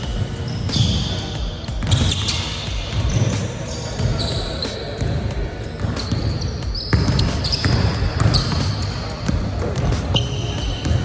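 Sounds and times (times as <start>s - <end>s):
sneakers squeaking: 0.0s - 11.0s
basketball dribbling: 5.8s - 11.0s.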